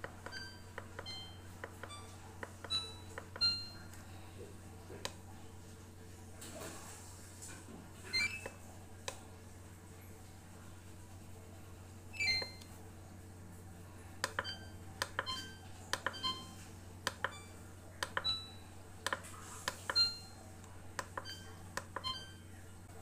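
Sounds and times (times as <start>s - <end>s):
electronic control panel beeps: 0.0s - 3.9s, 8.1s - 8.6s, 12.1s - 12.7s, 14.2s - 20.4s, 21.0s - 22.5s
button clicks: 12.2s - 12.7s, 18.0s - 18.4s, 21.0s - 22.3s.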